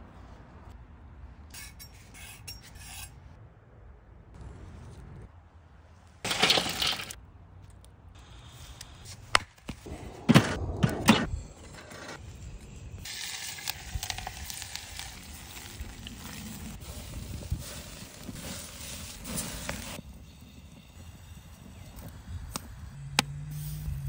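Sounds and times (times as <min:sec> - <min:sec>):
butter sizzling in a pot: 0:13.0 - 0:21.0.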